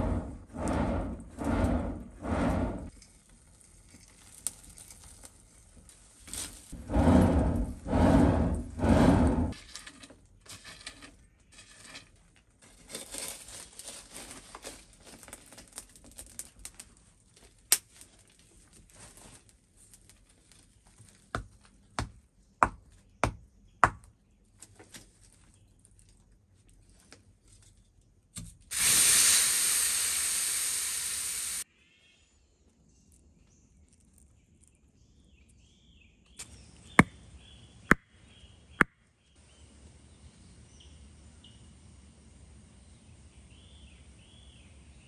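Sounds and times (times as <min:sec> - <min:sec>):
loud steady hiss: 0:28.7 - 0:31.6.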